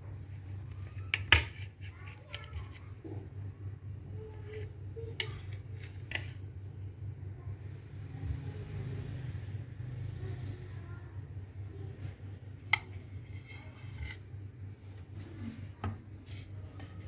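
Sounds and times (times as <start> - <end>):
steady low hum: 0.0 - 17.0
knife scraping across plate: 12.7 - 14.3.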